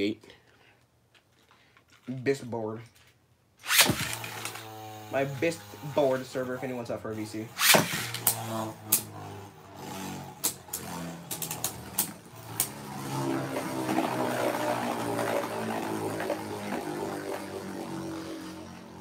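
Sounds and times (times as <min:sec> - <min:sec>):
spinning tops whirring: 0:03.6 - 0:19.0
spinning tops clacking together: 0:10.4 - 0:12.8.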